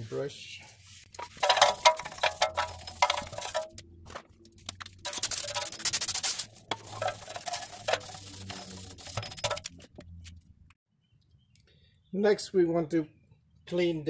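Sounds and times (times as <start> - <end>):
brush scrubbing metal: 0.8 - 3.8, 5.0 - 9.8.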